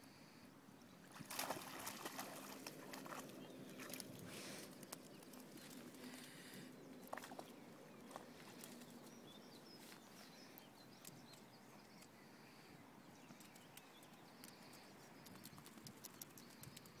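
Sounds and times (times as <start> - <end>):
small clicks: 13.2 - 17.0.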